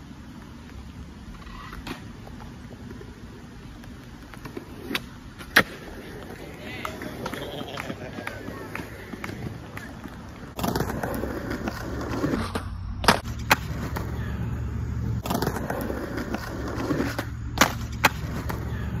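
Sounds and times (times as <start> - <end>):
skateboard wheels rolling on concrete: 0.0 - 19.0
skateboard landing: 0.3 - 19.0
skateboard tail pop: 15.2 - 18.6.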